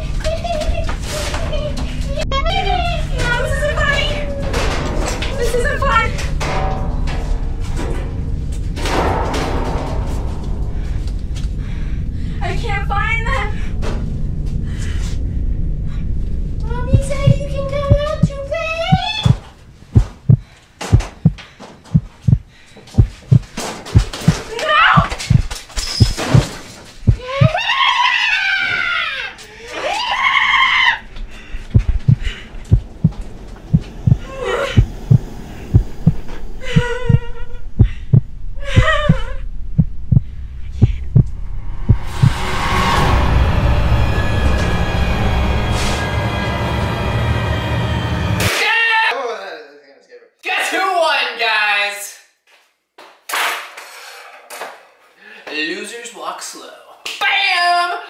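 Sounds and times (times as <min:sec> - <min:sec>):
loud steady low rumble: 0:00.0 - 0:21.4, 0:31.2 - 0:48.2
heartbeat thumping: 0:16.8 - 0:27.6, 0:31.6 - 0:42.4
high-pitched screams: 0:27.2 - 0:31.1.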